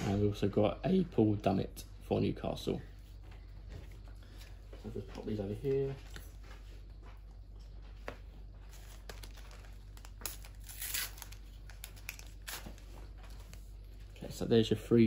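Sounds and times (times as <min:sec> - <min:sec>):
packet crinkling and tearing: 0:08.7 - 0:13.6.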